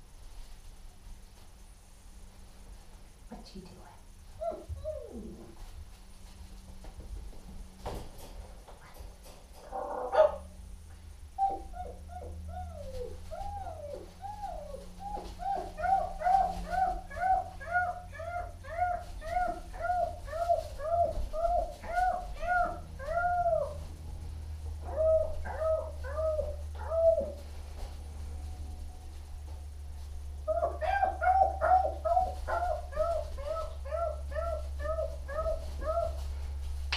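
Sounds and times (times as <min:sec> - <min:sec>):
puppy whimpering yips: 0:11.4 - 0:23.8.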